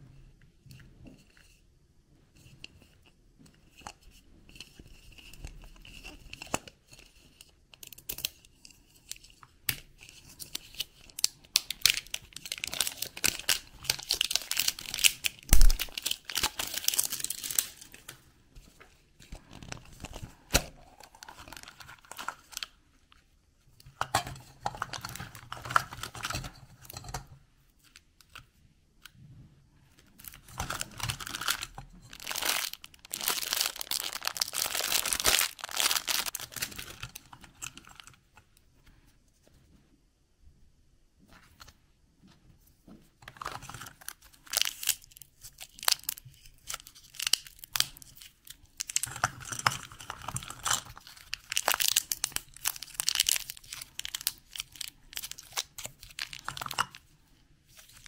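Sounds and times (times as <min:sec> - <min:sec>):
plastic wrap crinkling and tearing: 0:10.5 - 0:18.2, 0:19.4 - 0:22.8, 0:30.1 - 0:38.2, 0:43.4 - 0:57.0.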